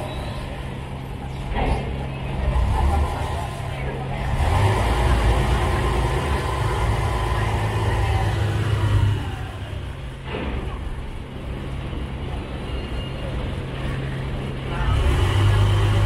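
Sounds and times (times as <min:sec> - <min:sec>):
ferry engine rumble: 0:00.0 - 0:16.0
water wash: 0:02.3 - 0:12.6.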